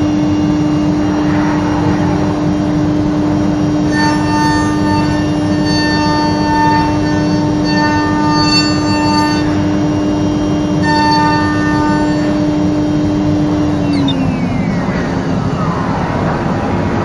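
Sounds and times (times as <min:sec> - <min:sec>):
constant rushing noise: 0:00.0 - 0:04.5, 0:12.2 - 0:17.0
router spindle whine: 0:00.0 - 0:17.0
bright ringing tone: 0:12.3 - 0:16.0.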